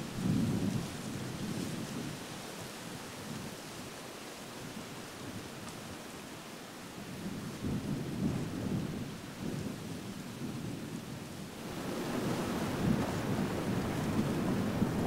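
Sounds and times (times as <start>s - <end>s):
wind buffeting microphone: 0.0s - 4.0s, 6.9s - 15.0s.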